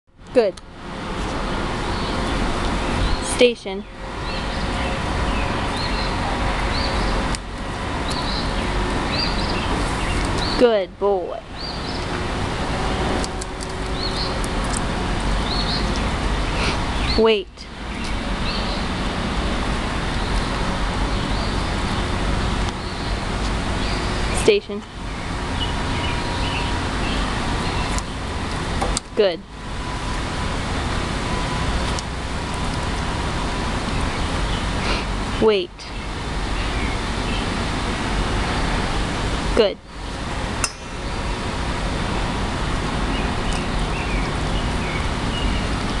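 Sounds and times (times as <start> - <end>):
outdoor background rush: 0.1 - 46.0
sharp click: 40.6 - 40.9.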